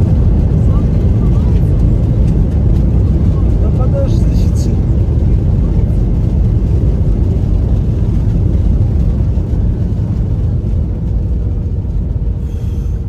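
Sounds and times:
jet engines rumbling in cabin: 0:00.0 - 0:13.0
rushing air: 0:11.5 - 0:13.0.

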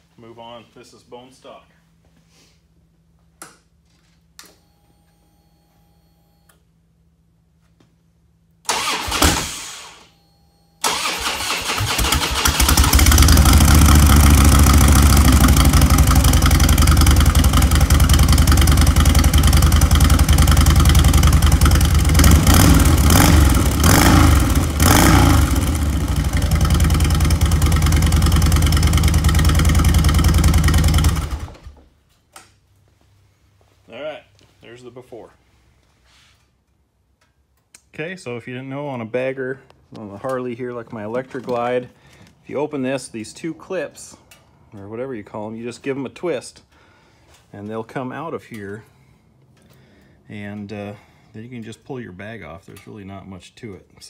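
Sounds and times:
motorcycle engine starting: 0:08.7 - 0:10.1, 0:10.8 - 0:31.8
motorcycle engine running: 0:12.4 - 0:31.8.

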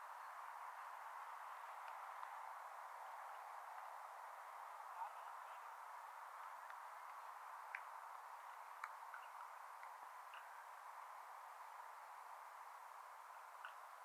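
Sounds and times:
faint background hiss: 0:00.0 - 0:14.0
faint clicks: 0:06.4 - 0:10.6.

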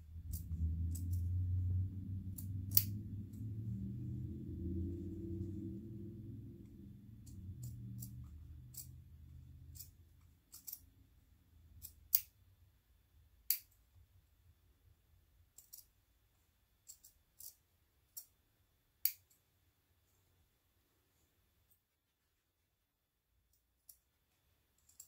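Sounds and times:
scissors snipping fabric: 0:00.2 - 0:01.3, 0:02.3 - 0:03.0, 0:07.2 - 0:10.8.

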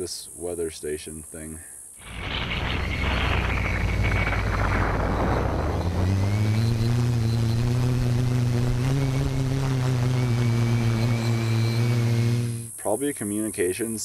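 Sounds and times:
faint high whine: 0:00.0 - 0:14.0
wind noise: 0:02.0 - 0:12.7
drone motors and propellers: 0:02.0 - 0:12.8.

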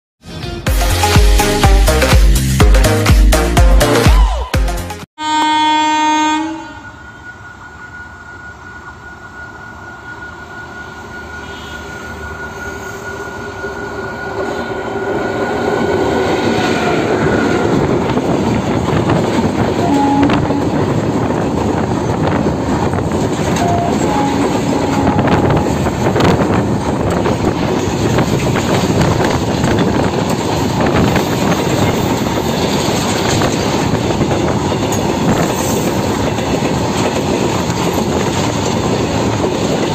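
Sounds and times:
electric locomotive whine: 0:05.2 - 0:39.9.

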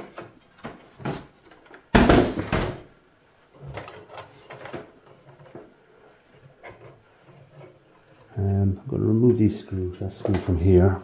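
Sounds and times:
handling and knocking: 0:00.0 - 0:03.0.

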